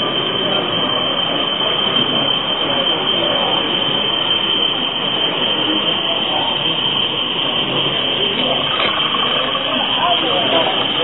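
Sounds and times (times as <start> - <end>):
diesel engine sound from speaker: 4.8 - 11.0.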